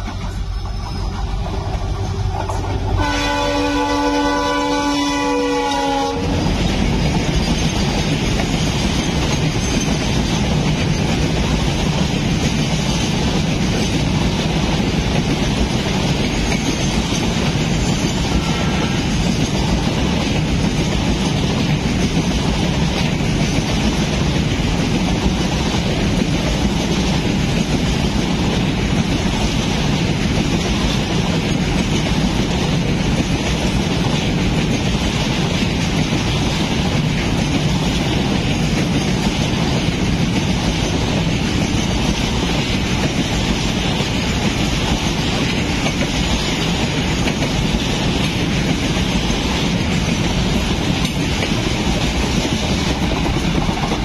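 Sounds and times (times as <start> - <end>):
train wheels rumbling on rails: 0.0 - 54.0
locomotive horn blast: 2.9 - 6.4.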